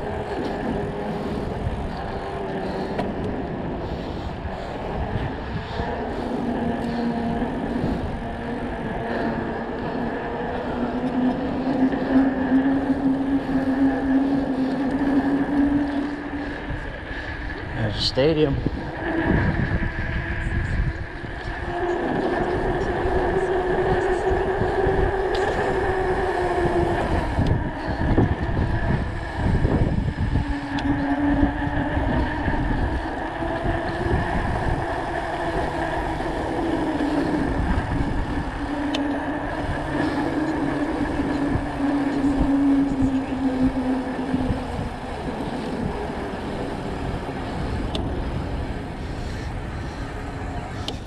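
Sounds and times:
wavering humming whine: 0.0 - 51.0
wind rumbling on microphone: 0.0 - 51.0.

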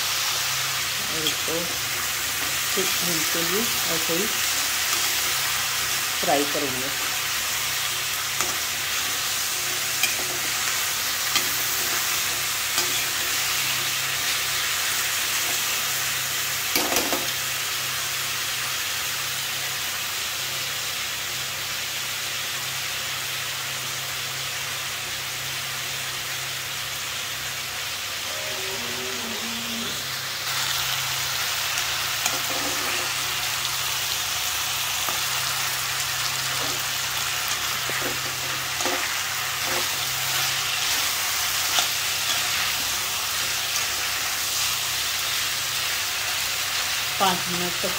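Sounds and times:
vegetables sizzling in oil: 0.0 - 47.9
spoon scraping a pan: 7.8 - 14.4, 32.2 - 33.3, 36.5 - 37.0, 37.6 - 43.6.

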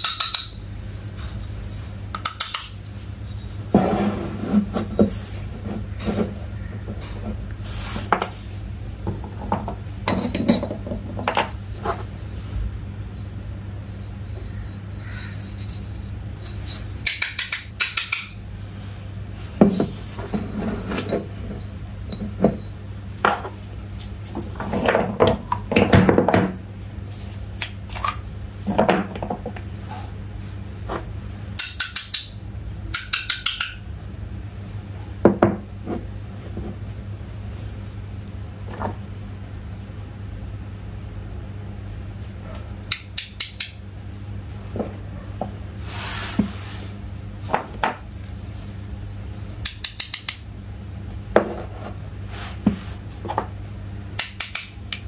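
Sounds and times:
clay pots clinking and knocking: 0.0 - 0.6, 9.0 - 12.0, 24.4 - 26.6, 32.9 - 33.9, 49.6 - 50.5, 54.2 - 55.0
steady low hum: 0.0 - 55.0.

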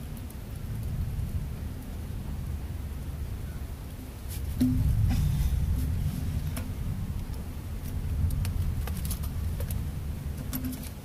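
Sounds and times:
low uneven rumble: 0.0 - 11.0.

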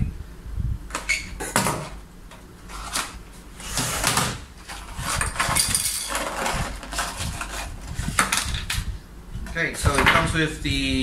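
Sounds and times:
packaging rustling and crinkling: 2.7 - 8.8.

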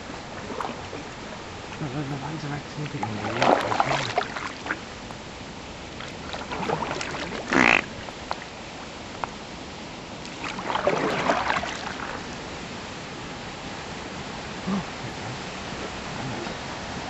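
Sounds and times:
paddle splashing in water: 0.0 - 5.2, 5.9 - 8.6, 10.2 - 12.4.

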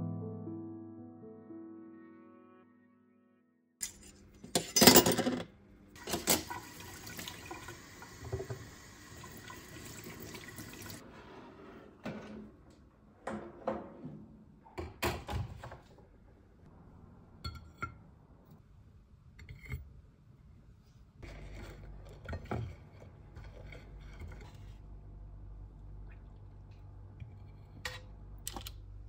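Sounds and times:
low steady hum: 16.6 - 29.0.

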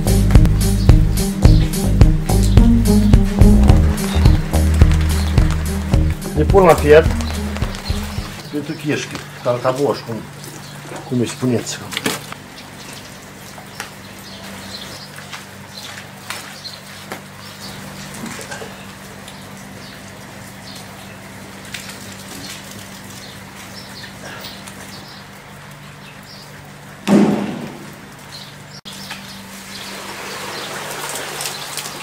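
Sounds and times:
loud thud: 27.1 - 27.9.

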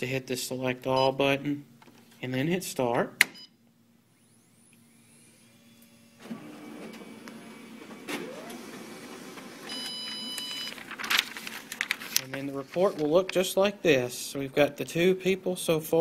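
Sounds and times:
copier mechanism running: 4.9 - 13.8
copier click: 6.2 - 12.4.

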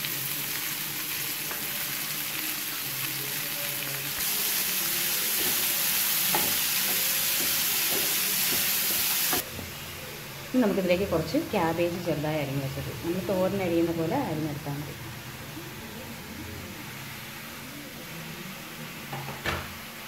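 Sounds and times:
onions sizzling in a pan: 0.0 - 19.4.

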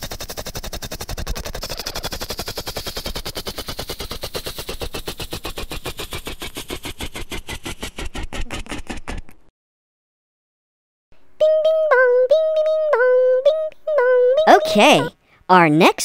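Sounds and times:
helicopter rotor blades chopping: 0.0 - 9.5.

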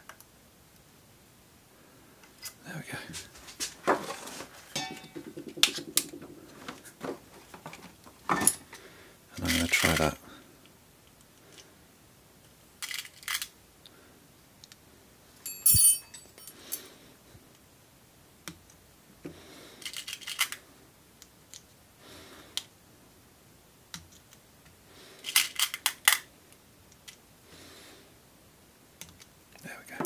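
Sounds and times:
sharp metallic clink: 4.8 - 5.2, 15.4 - 16.6.

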